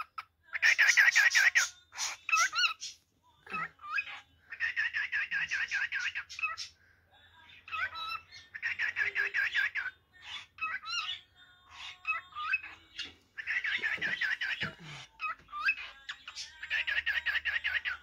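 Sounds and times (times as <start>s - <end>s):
cockatiel chirping: 0.0s - 6.7s, 7.7s - 18.0s.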